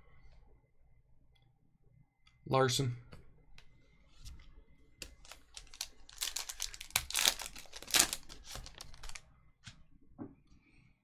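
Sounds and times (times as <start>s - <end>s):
foil wrapper crinkling: 5.1s - 9.2s.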